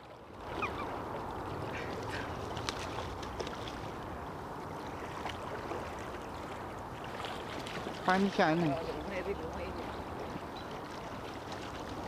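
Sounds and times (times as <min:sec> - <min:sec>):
river water rushing: 0:00.0 - 0:12.0
splashes: 0:00.0 - 0:12.0
seagull calls: 0:00.5 - 0:01.0.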